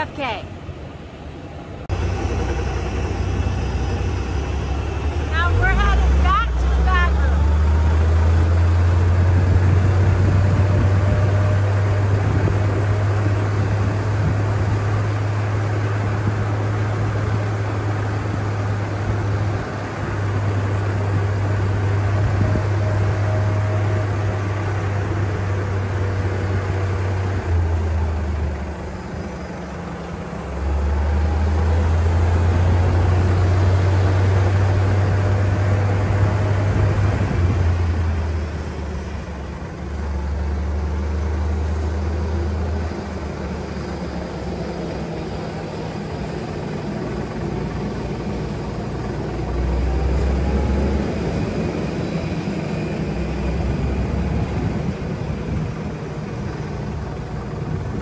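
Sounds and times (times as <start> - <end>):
vehicle low rumble: 0.0 - 58.0.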